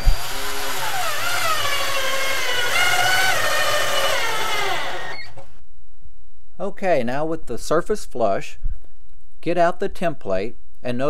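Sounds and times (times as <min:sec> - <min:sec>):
cordless drill driving screw: 0:00.0 - 0:05.4.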